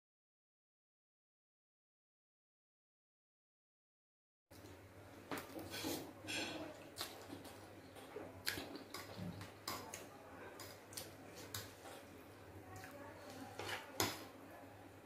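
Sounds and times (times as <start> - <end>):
wet chewing and lip smacks: 8.4 - 9.4.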